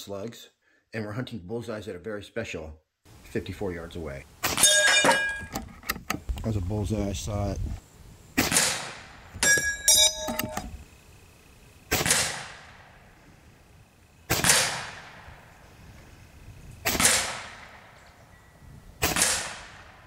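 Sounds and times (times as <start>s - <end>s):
air rifle shots: 8.4s - 9.2s, 11.9s - 13.1s, 14.3s - 15.5s, 16.8s - 18.0s, 19.0s - 20.0s
metallic clicks with ringing tone: 9.4s - 10.8s.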